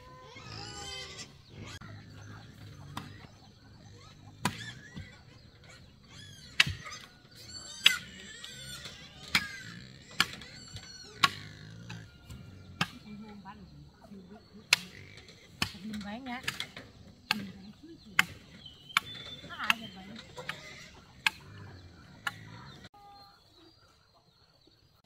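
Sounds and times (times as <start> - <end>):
high falling chirping calls: 16.0 - 23.9.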